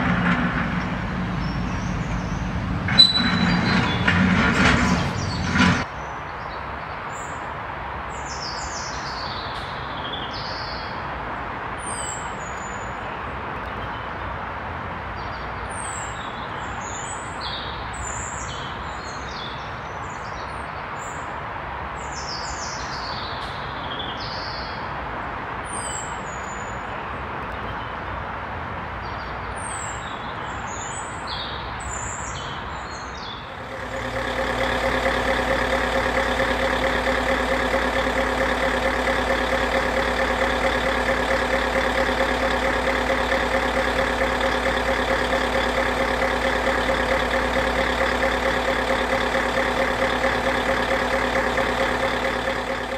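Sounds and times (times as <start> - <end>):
distant traffic: 0.0 - 15.6, 33.2 - 52.9
bird chirps and song: 1.4 - 4.2
loud steady tones: 33.5 - 52.9.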